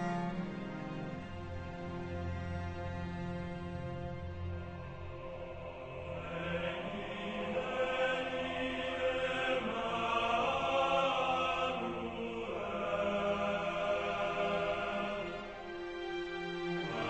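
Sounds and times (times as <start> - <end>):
choir chanting held notes: 4.8 - 17.0.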